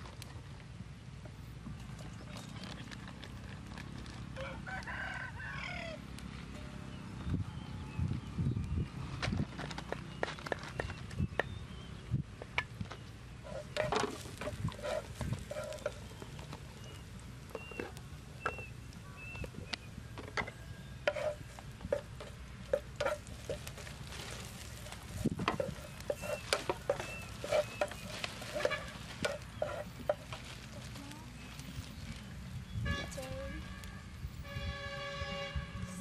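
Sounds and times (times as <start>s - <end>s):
garlic sizzling: 13.1s - 32.7s
spatula scraping frying pan: 13.4s - 16.2s, 21.0s - 30.5s.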